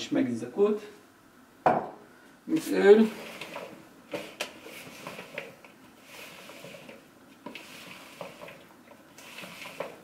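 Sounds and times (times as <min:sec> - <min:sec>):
wet rustle of filling being stirred: 0:02.5 - 0:10.0.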